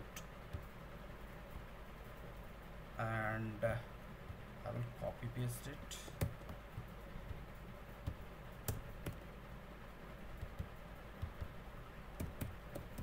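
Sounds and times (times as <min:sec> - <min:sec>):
faint low hum: 0:00.0 - 0:13.0
computer keyboard key taps: 0:12.2 - 0:13.0.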